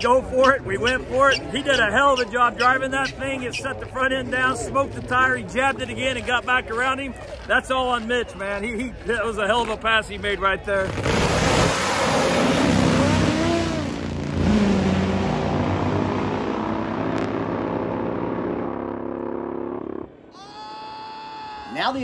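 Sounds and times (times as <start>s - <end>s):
drag motorcycles at full throttle: 10.8s - 20.3s.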